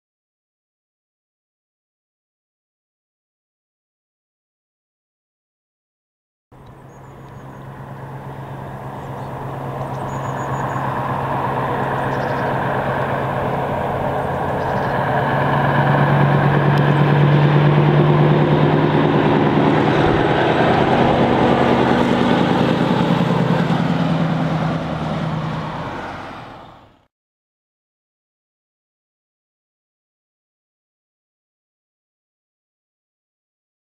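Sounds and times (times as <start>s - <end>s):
diesel truck driving past: 6.6s - 27.1s.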